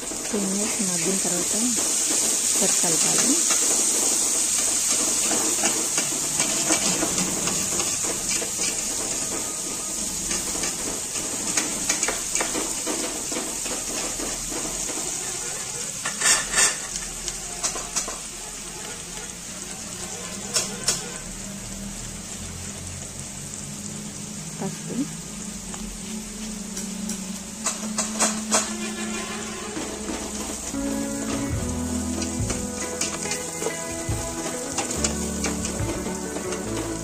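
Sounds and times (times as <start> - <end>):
vegetables sizzling in oil: 0.0 - 37.0
metal spatula scraping pot: 1.1 - 18.2, 27.1 - 37.0.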